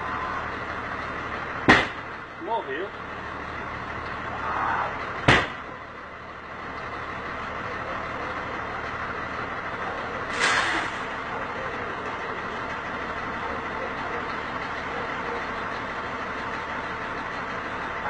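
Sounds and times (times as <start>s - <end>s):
bus engine idling: 0.0s - 18.0s
sharp knock: 1.7s - 2.0s.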